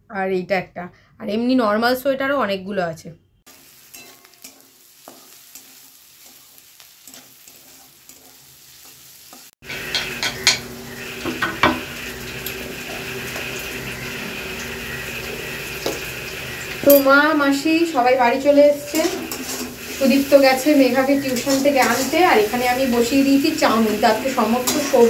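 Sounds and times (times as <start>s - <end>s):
vegetables sizzling in a wok: 3.5s - 25.0s
metal spatula scraping a pan: 3.6s - 11.9s, 18.7s - 23.0s, 23.7s - 25.0s.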